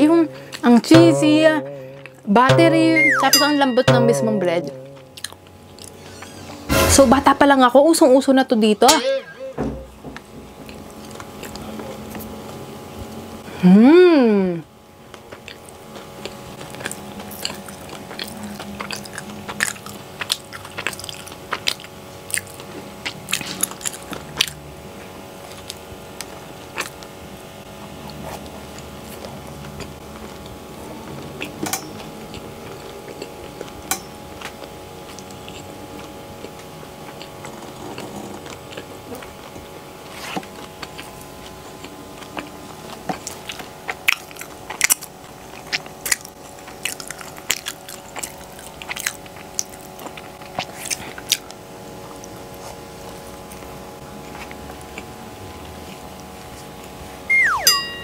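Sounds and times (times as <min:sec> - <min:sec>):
chewing bread: 0:10.6 - 0:13.2, 0:15.0 - 0:57.0.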